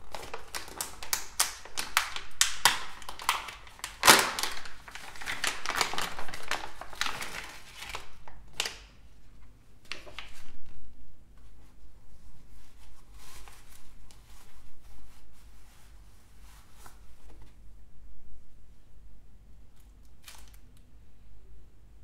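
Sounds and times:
plastic zip bag crackling: 0.0 - 8.8.

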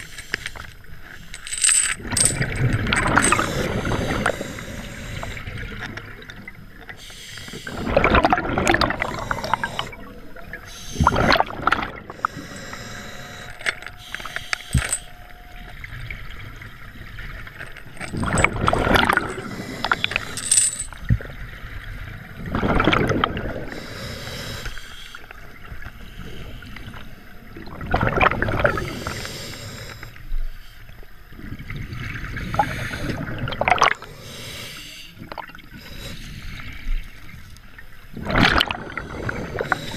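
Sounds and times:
underwater water noise: 0.0 - 39.9
exhaled bubbles rushing: 7.7 - 12.2, 18.1 - 19.5, 21.0 - 23.7, 27.5 - 28.9, 31.4 - 34.0, 38.1 - 39.7.

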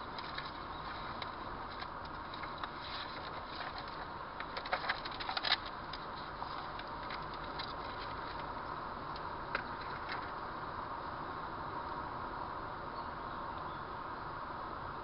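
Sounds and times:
sharp clicks and crackles: 0.0 - 10.4
car interior driving noise: 0.0 - 15.0.

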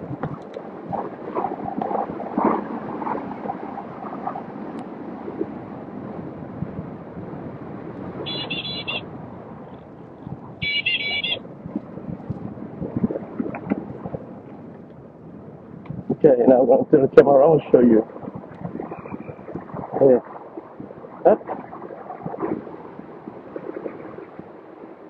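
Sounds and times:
wind buffeting microphone: 0.0 - 25.0
road noise: 2.4 - 21.7
short high electronic beeps: 8.3 - 9.0, 10.6 - 11.4.

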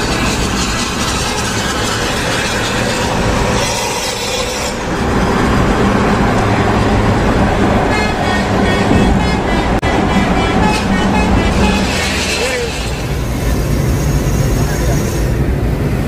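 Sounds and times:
low engine rumble: 0.0 - 16.0.

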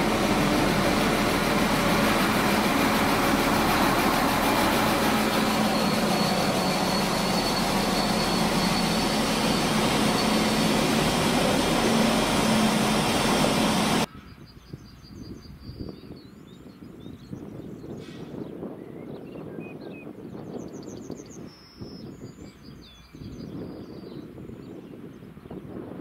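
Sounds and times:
diesel engine low hum: 0.0 - 14.1
faint high whine: 0.0 - 14.1.

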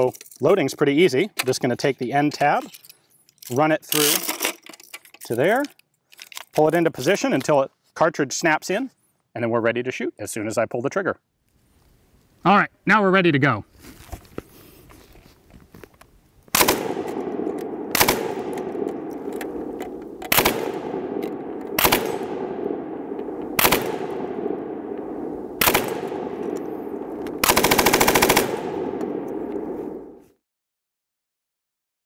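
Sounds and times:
rolling echo: 16.5 - 30.4
machine gun bursts: 17.9 - 19.6, 20.3 - 22.5, 23.5 - 24.4, 25.6 - 29.4.

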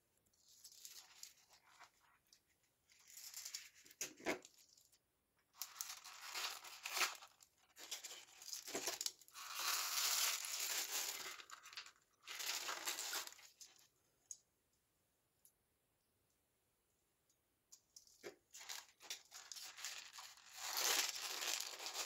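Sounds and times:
plastic wrapper crinkling and tearing: 0.4 - 4.8, 5.5 - 13.9, 18.5 - 22.0.

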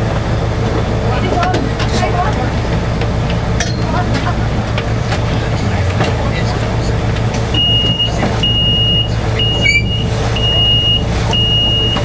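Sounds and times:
tram engine hum: 0.0 - 12.0
high electronic warning beeps: 7.6 - 12.0.

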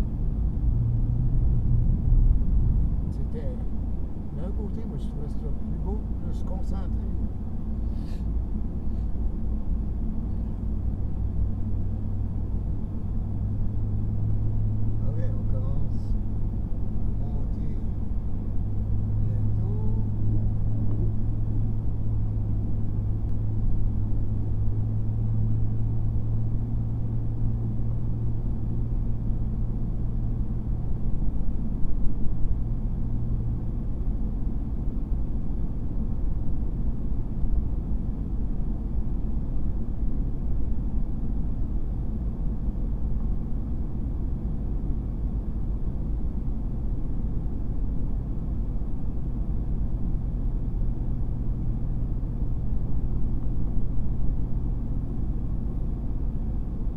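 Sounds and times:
engine drone inside vehicle: 0.0 - 56.9
road rumble: 0.0 - 56.9.

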